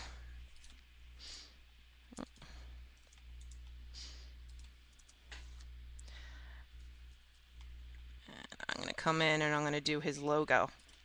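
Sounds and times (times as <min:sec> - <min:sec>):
low electrical hum: 0:00.0 - 0:11.0
computer mouse clicks: 0:03.0 - 0:03.8, 0:04.5 - 0:06.1.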